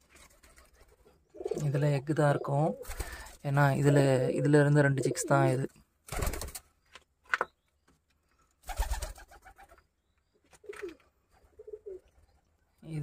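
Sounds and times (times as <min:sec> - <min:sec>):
pigeons cooing: 0:00.6 - 0:05.7, 0:10.5 - 0:12.3
pigeon wing flaps: 0:06.1 - 0:06.7, 0:08.6 - 0:09.7.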